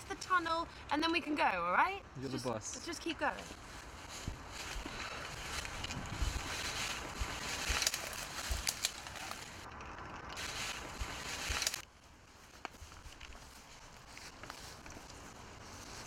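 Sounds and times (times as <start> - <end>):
twigs cracking: 2.7 - 16.0
footsteps crunching dry leaves: 3.4 - 9.6, 10.4 - 16.0.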